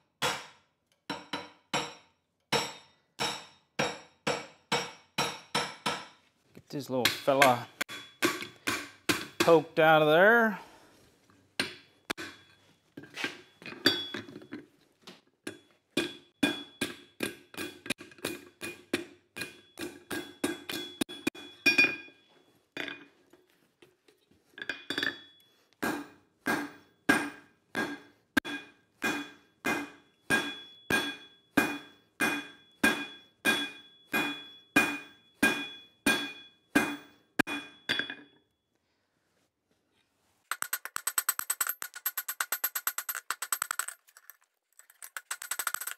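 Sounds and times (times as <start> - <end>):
hammer ringing on anvil: 26.5 - 38.3
fast rattling: 40.5 - 45.9.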